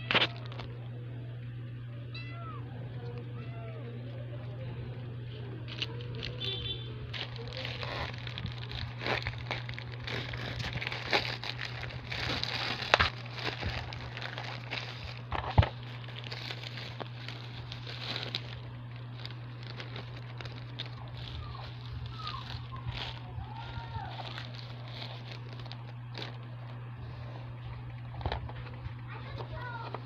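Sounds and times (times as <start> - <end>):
plastic packaging crinkling: 0.0 - 0.7, 5.6 - 30.0
steady low hum: 0.0 - 30.0
plastic mailer tearing: 5.7 - 26.7.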